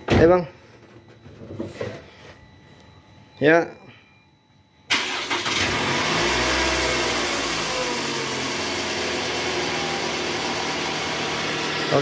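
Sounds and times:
car engine starting and idling: 4.9s - 12.0s.

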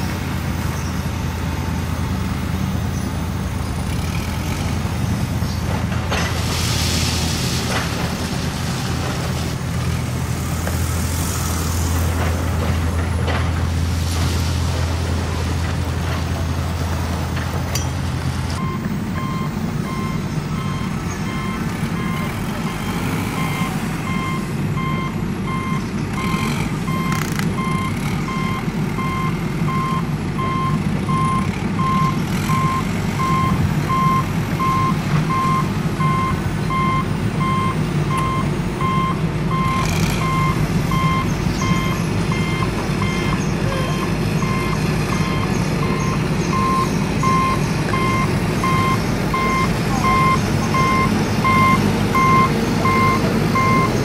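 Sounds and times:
reversing alarm beeps: 18.6s - 54.0s.

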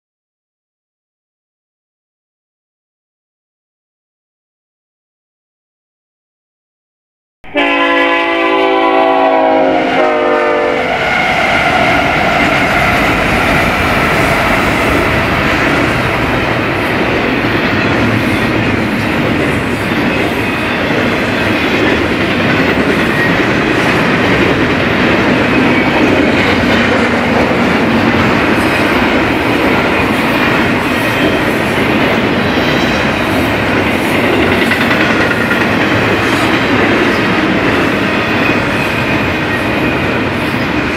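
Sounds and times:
locomotive horn blowing: 7.4s - 11.0s
train wheels clattering: 10.9s - 40.9s.

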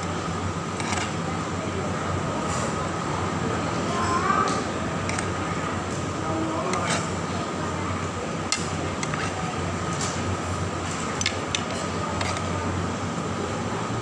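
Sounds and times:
crab shell and dishes clinking: 5.0s - 5.4s, 6.6s - 7.2s, 8.5s - 9.4s.

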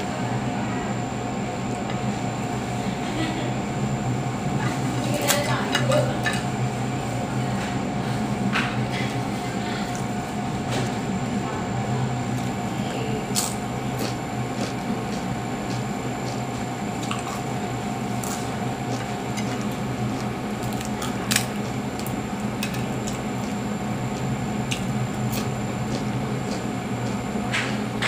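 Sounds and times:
electric fan humming: 0.0s - 28.0s
crispy food crunching: 13.3s - 27.2s
wet chewing: 13.3s - 27.7s.

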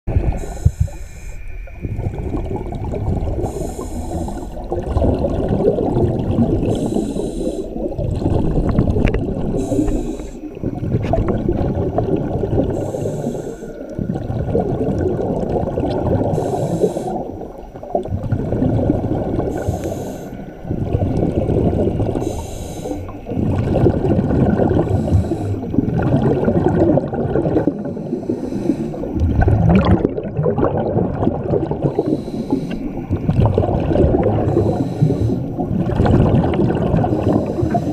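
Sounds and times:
regulator inhale hiss: 0.3s - 1.8s, 3.4s - 4.8s, 6.7s - 7.9s, 9.5s - 10.8s, 12.6s - 14.0s, 16.2s - 17.6s, 19.5s - 20.6s, 22.2s - 23.4s, 24.8s - 25.7s, 27.6s - 29.2s, 31.8s - 33.1s, 34.4s - 35.7s, 37.1s - 37.9s
exhaled bubbles rushing: 1.6s - 37.9s.

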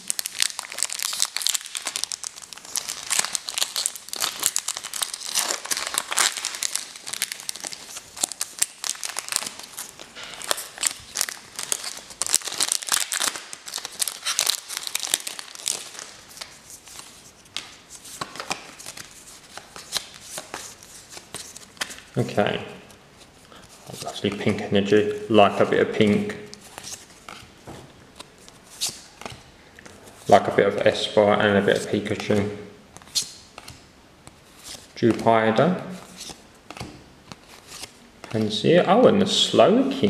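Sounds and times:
foil wrapper crinkling and tearing: 0.0s - 17.1s.

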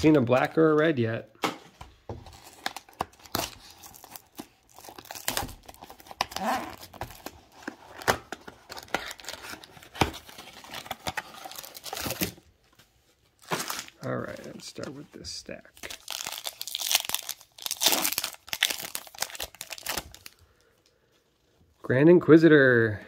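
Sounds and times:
plastic wrap tearing and crinkling: 2.3s - 12.4s, 13.4s - 14.8s, 15.8s - 20.4s.

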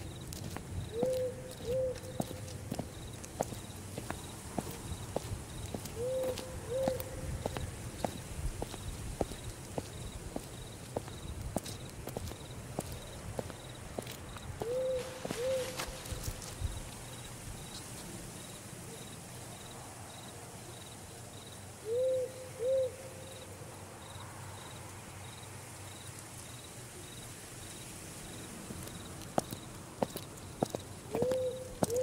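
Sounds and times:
footsteps: 0.0s - 18.1s, 28.8s - 32.0s
crickets chirping: 0.0s - 32.0s
owl hooting: 0.9s - 2.5s, 5.9s - 7.6s, 14.6s - 16.2s, 21.8s - 23.3s, 31.1s - 32.0s.

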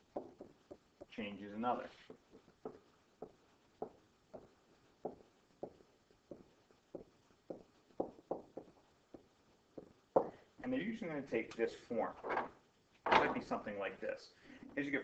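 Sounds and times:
stylus tapping on writing surface: 0.0s - 1.1s, 2.1s - 10.4s.

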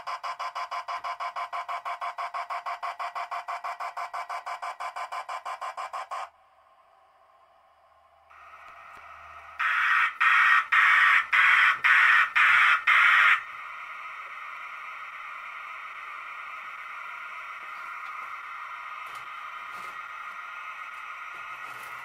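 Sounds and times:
model steam locomotive chuffs: 8.3s - 22.0s.

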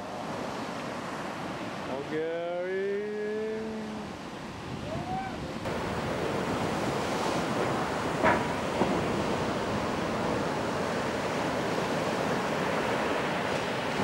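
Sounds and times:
ocean surf washing on shore: 0.0s - 14.0s
wind on microphone: 3.8s - 14.0s.

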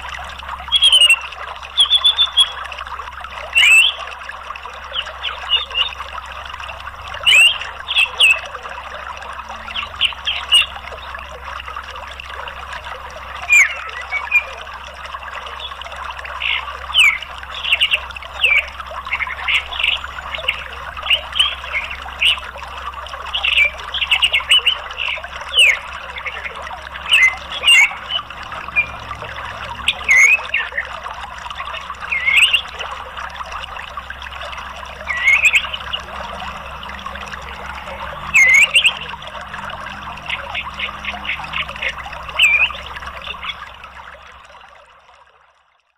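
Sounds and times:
flowing water: 0.0s - 45.9s
bird chirping: 3.5s - 4.0s, 7.2s - 8.6s, 13.4s - 14.6s, 16.4s - 22.5s, 23.3s - 30.9s, 32.0s - 32.9s, 34.3s - 43.7s.

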